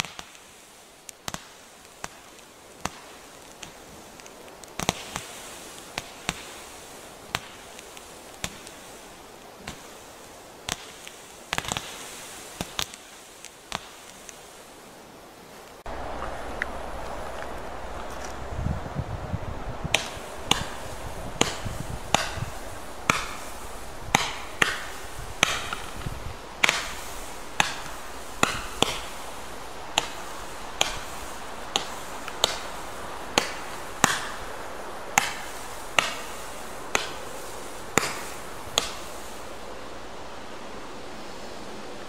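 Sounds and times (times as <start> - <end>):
firework shots thumping and hissing: 0.0 - 14.8, 15.8 - 39.7.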